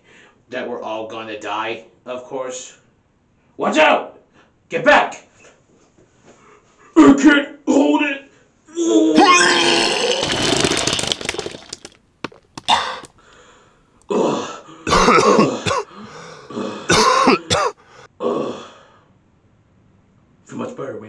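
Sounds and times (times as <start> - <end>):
person retching: 9.1 - 13.2, 14.9 - 15.9, 16.5 - 17.8.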